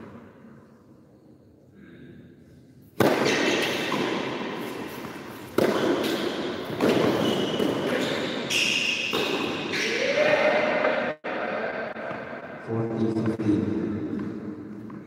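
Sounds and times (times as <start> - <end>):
tennis ball hits echoing: 3.0 - 7.9, 9.0 - 9.8.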